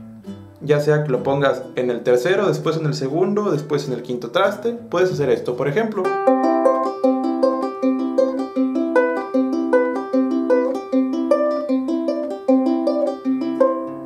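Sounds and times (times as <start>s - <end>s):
ukulele fingerpicked arpeggio: 4.7s - 14.0s.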